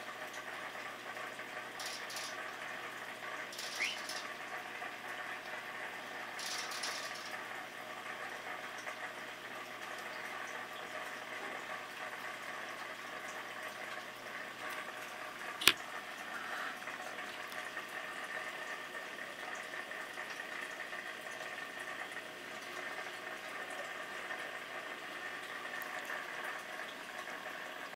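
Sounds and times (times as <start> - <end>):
aquarium water bubbling: 0.0 - 27.9
sharp click: 15.6 - 15.8.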